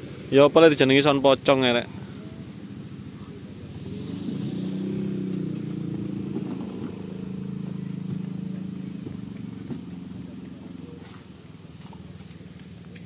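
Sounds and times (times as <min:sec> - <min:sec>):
diesel truck engine knocking: 0:07.4 - 0:10.7.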